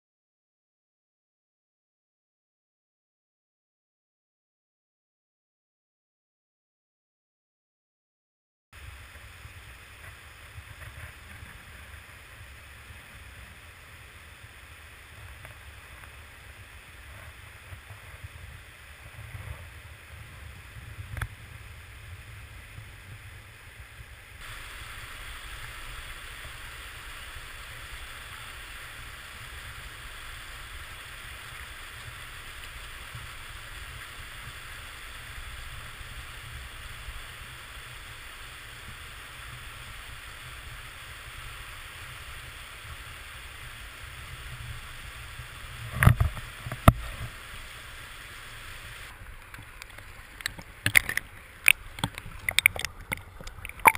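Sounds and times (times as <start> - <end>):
river rushing over rocks: 24.4 - 53.9.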